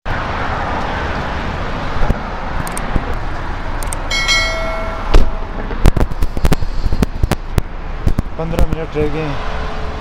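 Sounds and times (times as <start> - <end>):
traffic noise: 0.0 - 10.0
pitched tone: 4.1 - 6.2
sharp knocks: 4.1 - 6.3.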